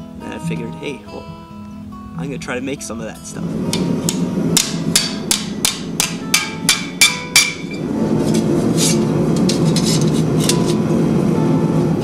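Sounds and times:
acoustic guitar music: 0:00.0 - 0:12.0
hammer striking steel plate: 0:03.7 - 0:10.8.

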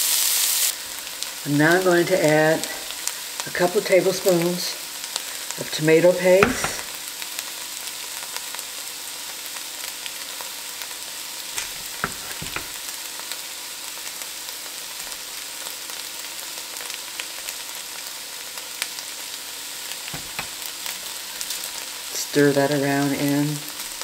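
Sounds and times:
vegetables sizzling in hot oil: 0:00.0 - 0:24.0
light knocks: 0:11.6 - 0:12.8, 0:20.2 - 0:20.6.

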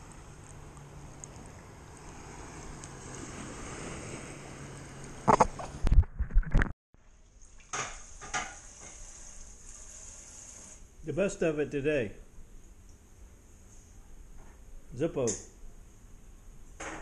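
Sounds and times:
steady hiss: 0:07.7 - 0:11.6.

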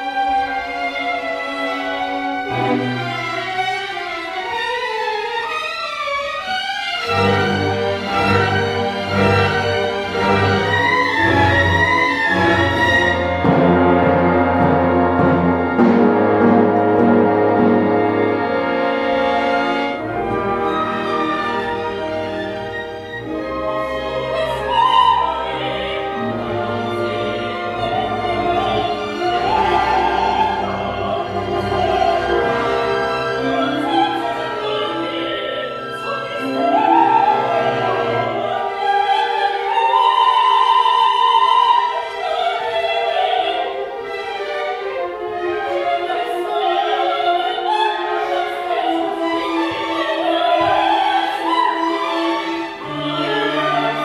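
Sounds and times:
orchestra playing: 0:00.0 - 0:54.0
women singing opera: 0:20.1 - 0:54.0.

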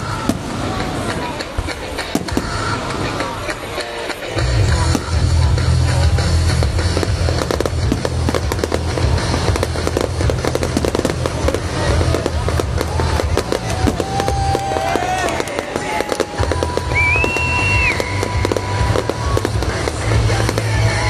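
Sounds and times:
fireworks bursting and crackling: 0:00.0 - 0:21.0
rock music with heavy bass: 0:01.8 - 0:14.5, 0:16.4 - 0:21.0.

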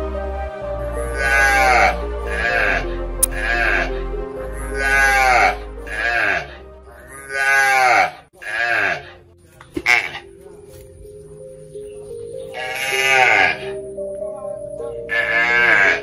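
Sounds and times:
soft background music: 0:00.0 - 0:16.0
livestock bleating: 0:01.0 - 0:09.2, 0:09.8 - 0:10.3, 0:12.5 - 0:13.8, 0:15.1 - 0:16.0.

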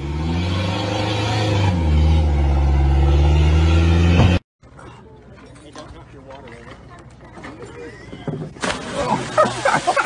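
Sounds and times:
engine revving hard: 0:00.0 - 0:04.4.

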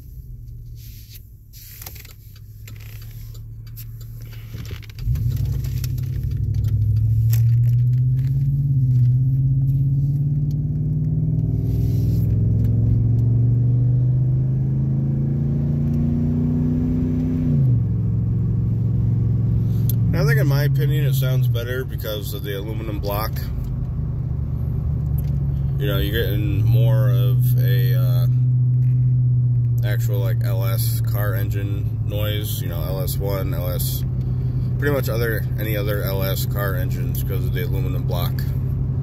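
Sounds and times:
truck exhaust rumble and drone: 0:00.0 - 0:39.0.

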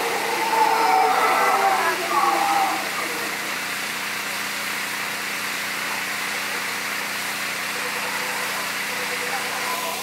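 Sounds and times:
howler monkey roaring: 0:00.0 - 0:03.4.

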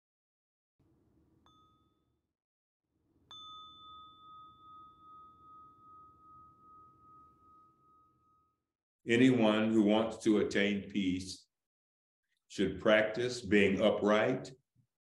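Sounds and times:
meditation bowl bell ringing: 0:01.4 - 0:02.3, 0:03.1 - 0:08.8.

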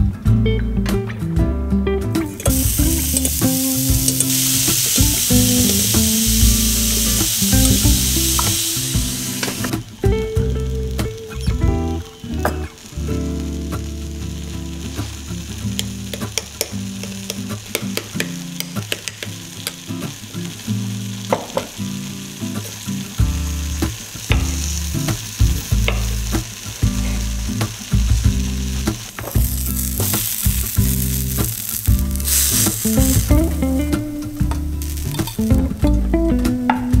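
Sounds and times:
light background music: 0:00.0 - 0:14.9, 0:22.6 - 0:37.0
food sizzling on grill pan: 0:02.2 - 0:36.1
knife tapping on wooden board: 0:16.2 - 0:19.3.

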